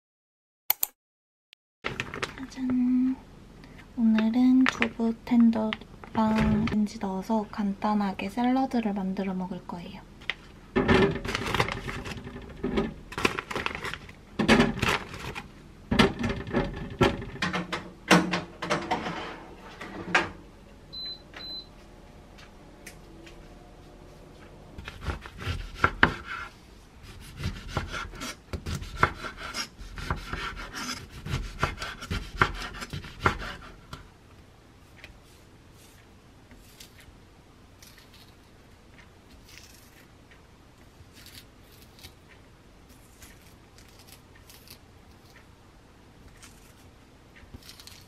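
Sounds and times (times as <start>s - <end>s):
plastic bag rustling: 13.1s - 15.5s.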